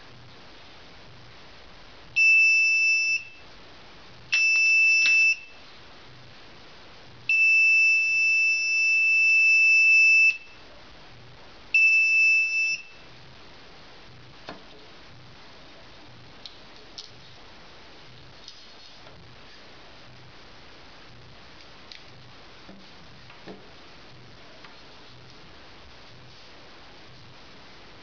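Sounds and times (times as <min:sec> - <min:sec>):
high-pitched buzzer tone: 0:02.2 - 0:03.4, 0:04.3 - 0:05.6, 0:07.3 - 0:10.6, 0:11.8 - 0:13.0.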